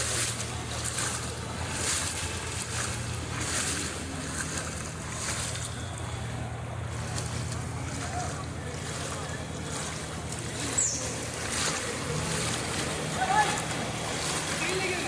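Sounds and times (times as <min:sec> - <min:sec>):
floodwater sloshing and splashing: 0:00.0 - 0:15.0
vehicle engine droning: 0:00.0 - 0:15.0.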